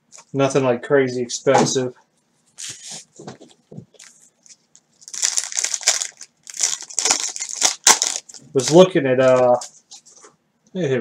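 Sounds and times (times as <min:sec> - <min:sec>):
card pack wrappers crinkling: 0:03.9 - 0:09.7.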